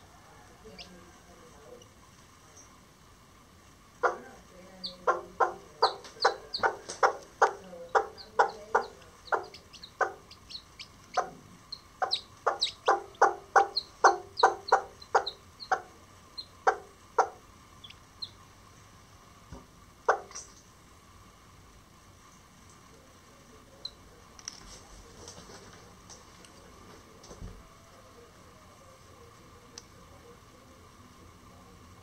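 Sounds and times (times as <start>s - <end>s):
chicks peeping: 4.0s - 18.4s, 20.0s - 20.6s
hen clucking: 4.0s - 18.4s, 20.0s - 20.5s.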